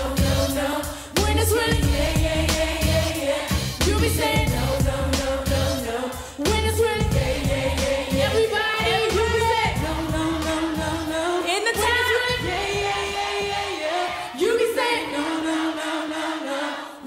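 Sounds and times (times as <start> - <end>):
backing music with bass beat: 0.0 - 13.9
female vocal group singing: 0.0 - 17.0.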